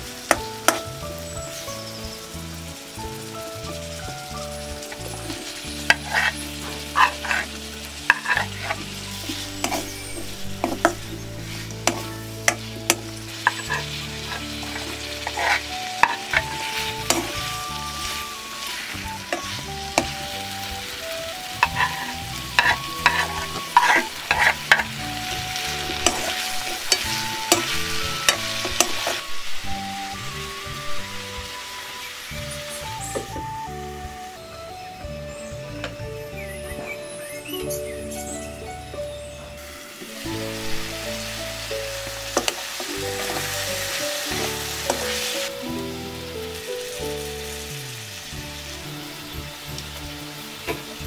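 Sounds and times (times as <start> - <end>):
vegetables sizzling in a wok: 0.0 - 51.0
spatula scraping and knocking pan: 4.9 - 17.4, 21.6 - 25.0.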